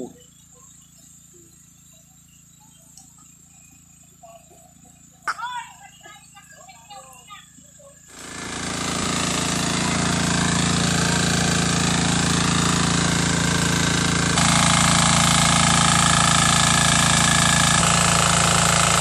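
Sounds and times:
water pump engine running: 8.0 - 19.0.

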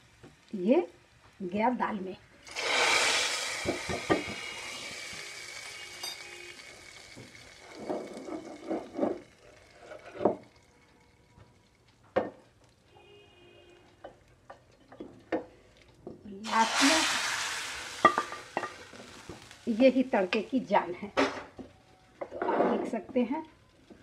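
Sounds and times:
spices sizzling in oil: 0.0 - 12.9, 13.7 - 21.1
spoon scraping pot: 7.7 - 10.5.

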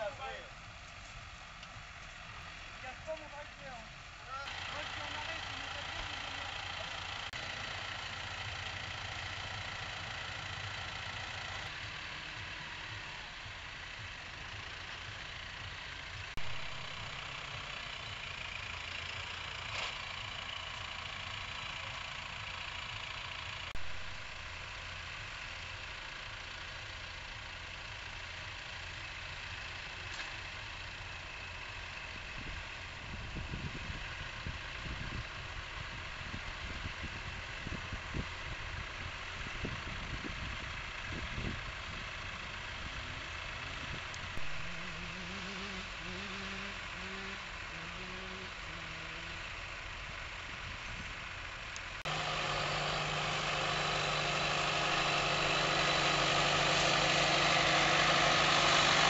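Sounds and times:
tractor engine drone: 0.0 - 59.0.

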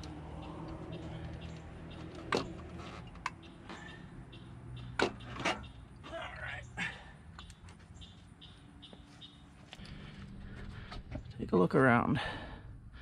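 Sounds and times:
low steady hum: 9.7 - 13.0.

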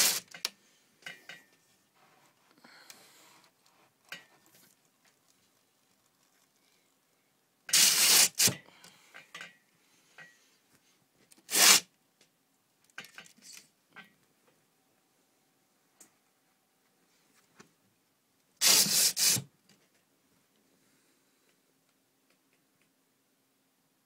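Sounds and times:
faint clicks and taps: 21.4 - 23.0.

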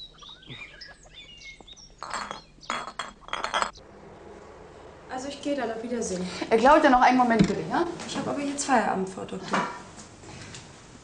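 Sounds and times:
faint bird chirps: 0.0 - 2.9
glassy clinking of small objects: 2.0 - 3.8.

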